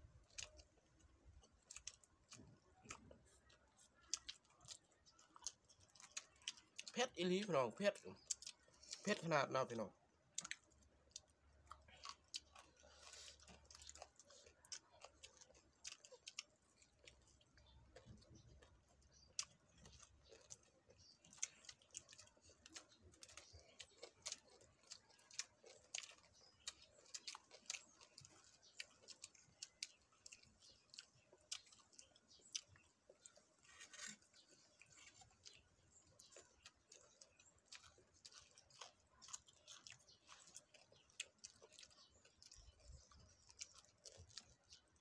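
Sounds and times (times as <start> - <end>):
faint chewing with crunches: 0.0 - 45.0.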